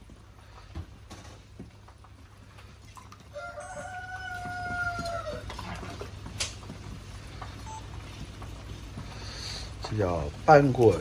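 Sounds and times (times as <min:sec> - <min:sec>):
low steady hum: 0:00.0 - 0:11.0
rooster crowing: 0:03.3 - 0:05.5.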